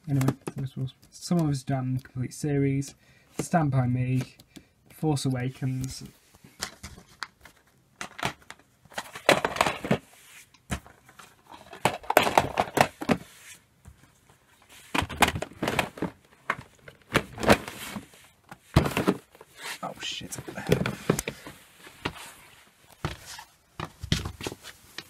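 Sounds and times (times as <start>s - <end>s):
plastic cases clattering: 6.5s - 10.1s, 10.7s - 13.3s, 14.8s - 19.6s, 20.2s - 22.2s.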